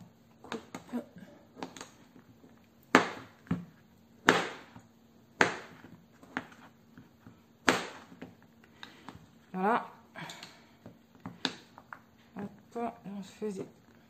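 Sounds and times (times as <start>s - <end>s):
knife chopping soap on plastic board: 1.5s - 2.2s, 2.8s - 9.3s, 10.8s - 12.1s.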